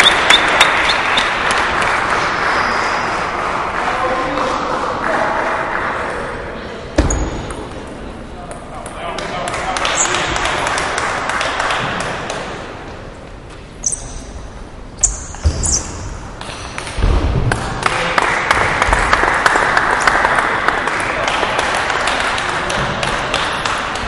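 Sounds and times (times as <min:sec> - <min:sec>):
table tennis ball pinging: 0:07.0 - 0:10.4.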